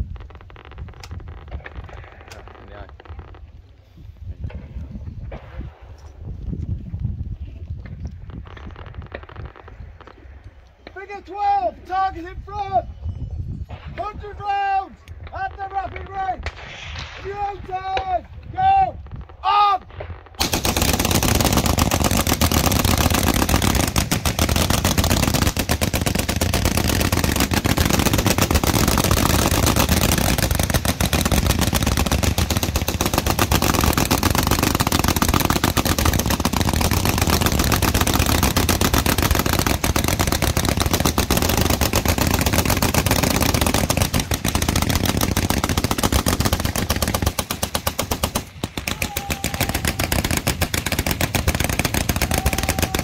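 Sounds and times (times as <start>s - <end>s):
machine guns firing: 19.8s - 53.0s.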